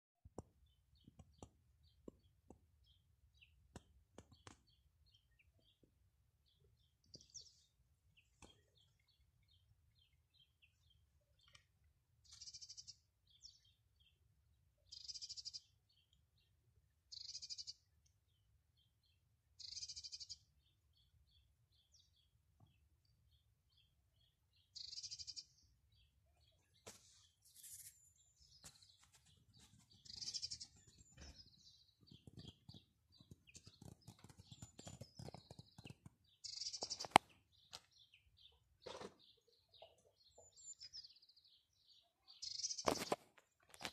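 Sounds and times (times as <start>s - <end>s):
bird chirping: 0.4s - 43.9s
faint clicks and scuffing: 26.7s - 36.2s.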